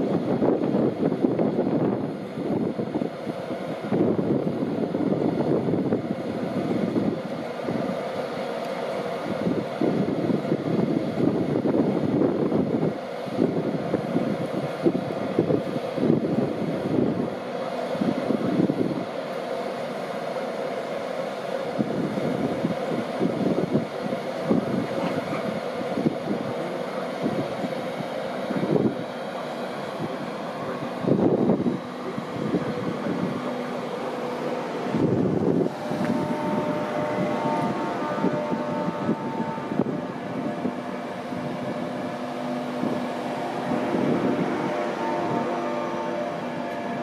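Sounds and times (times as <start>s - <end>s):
wind buffeting microphone: 0.0s - 8.1s, 9.2s - 19.1s, 21.7s - 47.0s
train rumbling at platform: 0.0s - 47.0s
mid-pitched hum: 23.3s - 47.0s.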